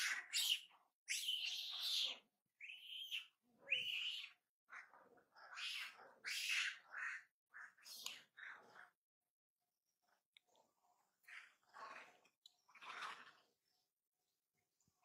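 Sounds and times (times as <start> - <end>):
monkeys squeaking and chirping: 0.0 - 4.4.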